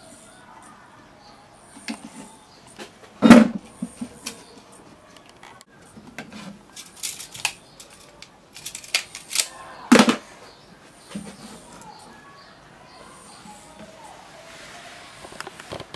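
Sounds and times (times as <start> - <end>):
tape measure metallic clicks: 6.8 - 9.6.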